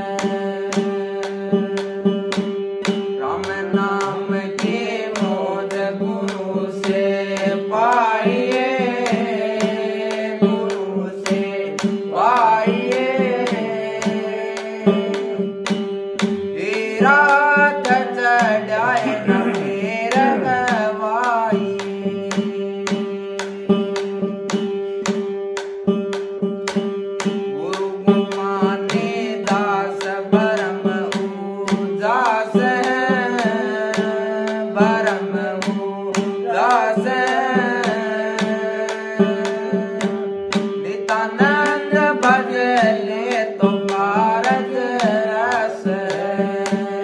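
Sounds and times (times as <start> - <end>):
man singing: 0.0 - 25.1, 27.4 - 47.0
plucked one-string drone: 12.1 - 37.9.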